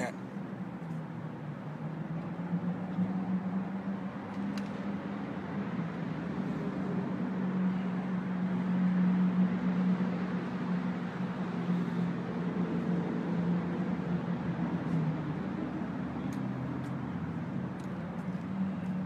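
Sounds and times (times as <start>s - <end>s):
city background noise: 0.0s - 19.0s.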